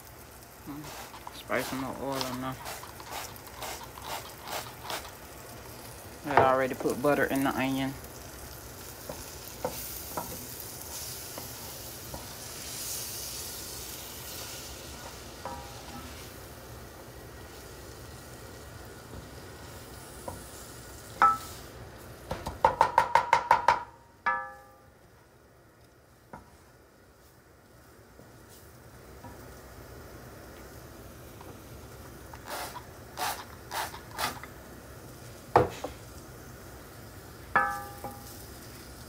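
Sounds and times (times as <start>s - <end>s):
onions sizzling in a pan: 0.0s - 39.0s
wooden spoon stirring: 0.7s - 5.2s
ringing knocks: 22.8s - 24.8s.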